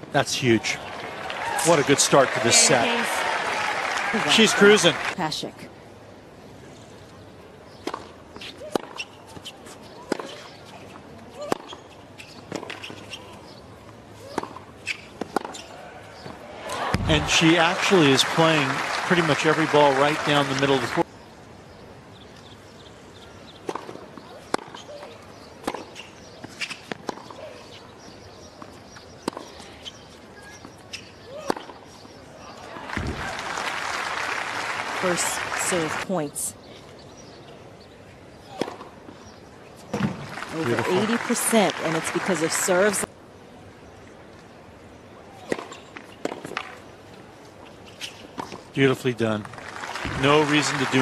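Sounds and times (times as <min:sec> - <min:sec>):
tennis ball bouncing: 0:07.8 - 0:10.5, 0:14.3 - 0:15.6, 0:23.6 - 0:27.4, 0:29.2 - 0:29.6, 0:31.0 - 0:31.8, 0:38.6 - 0:38.9, 0:45.5 - 0:46.7
tennis racquets hitting ball: 0:23.6 - 0:27.4, 0:31.0 - 0:31.8, 0:38.5 - 0:39.0, 0:45.4 - 0:46.8.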